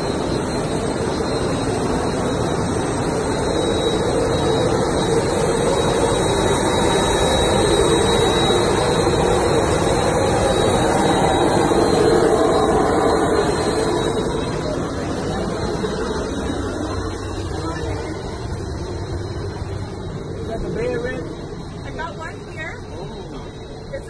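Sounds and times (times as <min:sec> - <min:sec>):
jet engine running: 0:00.0 - 0:24.0.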